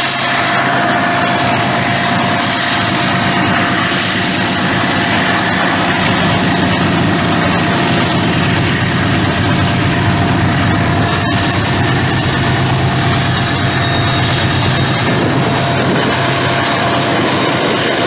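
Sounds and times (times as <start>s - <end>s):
high-pitched whine: 0.0s - 18.0s
locomotive engine drone: 0.0s - 18.0s.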